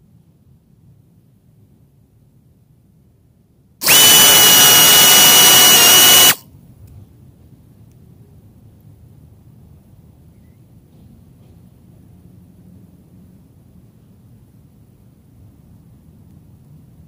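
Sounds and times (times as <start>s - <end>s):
small high-speed motor whining: 3.8s - 6.4s.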